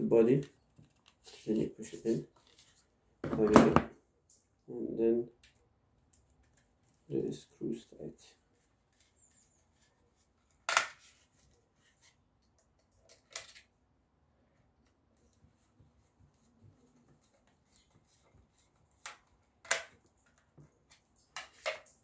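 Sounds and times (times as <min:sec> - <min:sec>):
plastic clicks and rustles: 0:12.4 - 0:13.8, 0:17.2 - 0:22.0.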